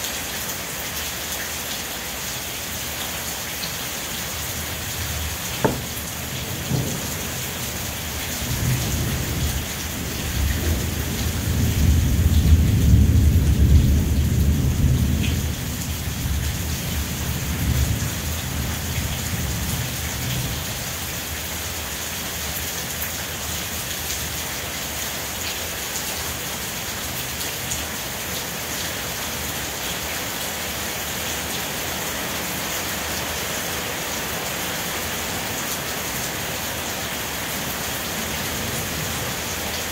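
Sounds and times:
steady rain: 0.0s - 39.9s
sharp tap: 5.6s - 6.0s
deep roll of thunder: 6.0s - 7.5s.

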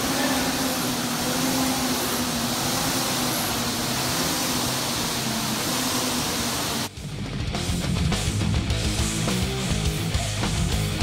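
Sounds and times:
rowing machine fans whirring: 0.0s - 7.0s.

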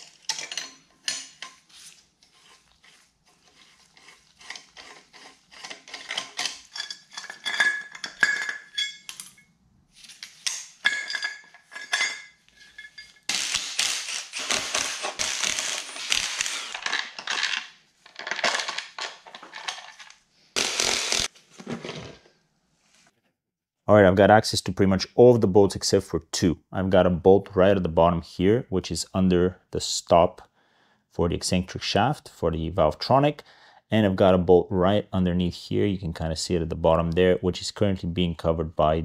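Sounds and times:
tools clinking on metal: 0.0s - 1.6s, 5.6s - 9.5s, 10.3s - 13.5s
metallic rattling and scraping: 0.0s - 9.5s, 10.1s - 17.5s.

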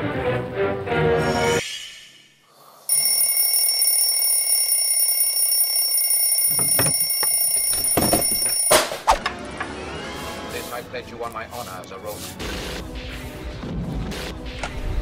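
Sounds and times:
high-pitched electronic ringing: 2.9s - 8.9s.

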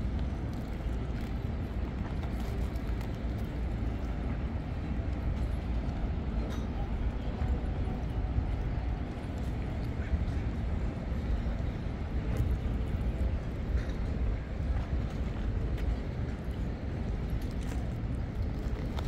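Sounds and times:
faint city traffic: 0.0s - 19.0s
wind buffeting microphone: 0.0s - 19.0s.

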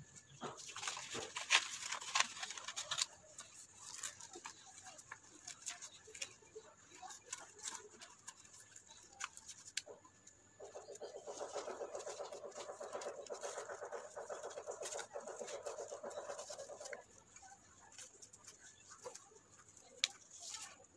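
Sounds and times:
paper rustling and crackling: 0.2s - 20.9s.

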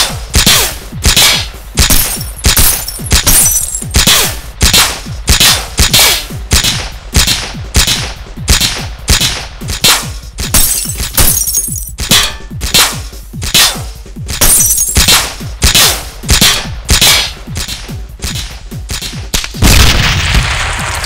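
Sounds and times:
gunshots: 0.0s - 21.0s
bullets hitting a car: 1.8s - 4.2s, 10.5s - 12.4s, 14.4s - 15.3s.

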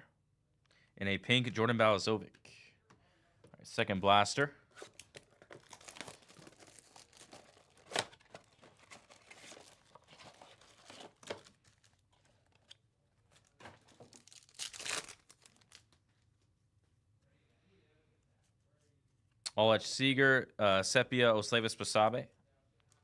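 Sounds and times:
packaging tearing: 4.8s - 12.6s, 14.1s - 15.9s
plastic wrap crinkling: 4.8s - 16.0s.

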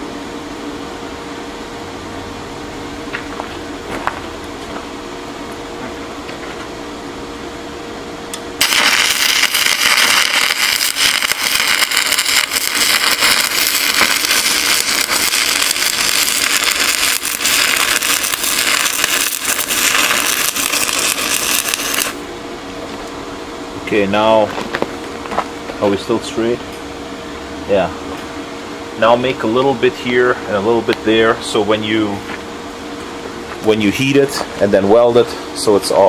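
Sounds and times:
steady hum: 0.0s - 36.0s
welding arc crackle and sizzle: 8.3s - 22.3s.

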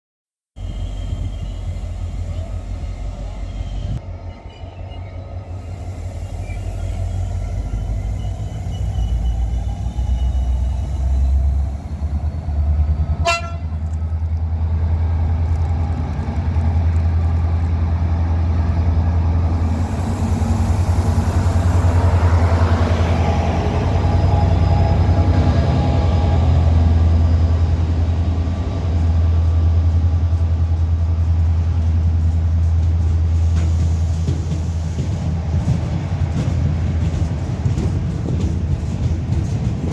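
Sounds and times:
diesel locomotive engine drone: 0.6s - 39.9s
train wheels on rails: 0.6s - 39.9s
train horn blast: 13.2s - 13.8s.

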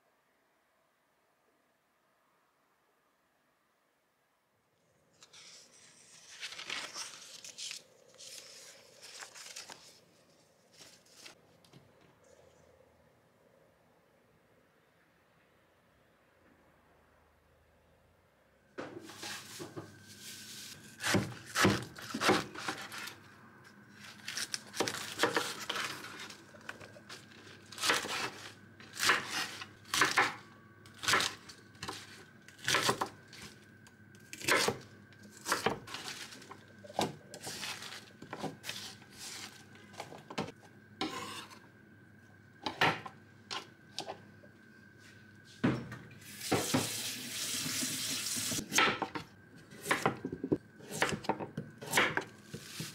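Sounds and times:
faint high hum: 0.0s - 52.9s
tap water running: 46.2s - 48.6s.

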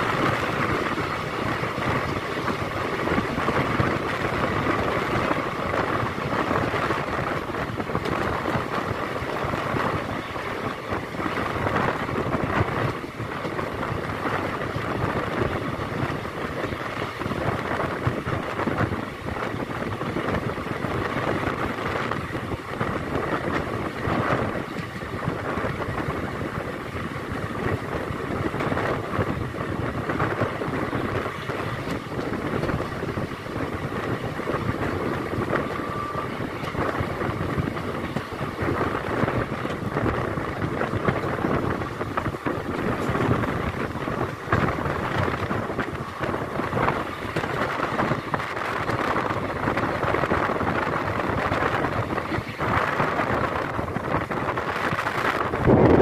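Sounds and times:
train wheels rumbling on rails: 0.0s - 56.0s
wind buffeting microphone: 0.0s - 56.0s.

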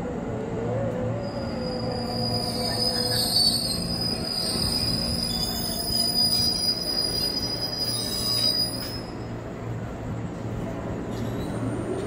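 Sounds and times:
train cars rumbling past: 0.0s - 12.0s
train brakes squealing: 1.1s - 9.4s, 11.0s - 12.0s.

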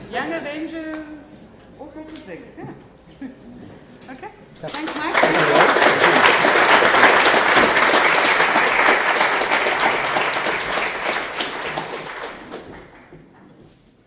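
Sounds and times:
audience applauding: 4.6s - 13.2s.

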